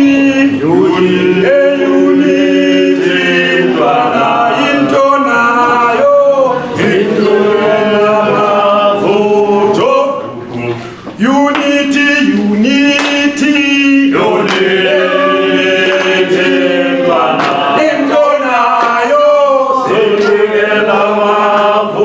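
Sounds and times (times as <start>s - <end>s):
group of voices singing: 0.0s - 22.0s.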